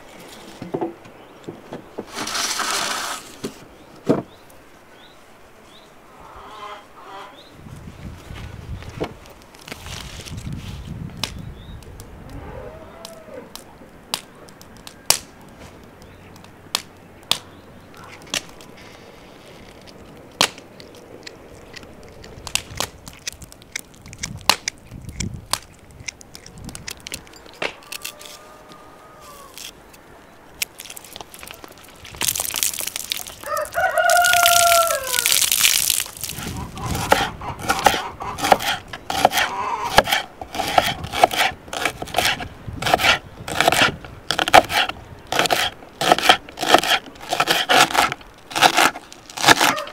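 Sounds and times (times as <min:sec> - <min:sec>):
sharp clicks: 0:19.8 - 0:28.0
rooster crowing: 0:27.7 - 0:29.6, 0:33.4 - 0:35.4, 0:49.6 - 0:49.9
knife chopping on wooden board: 0:37.0 - 0:49.8.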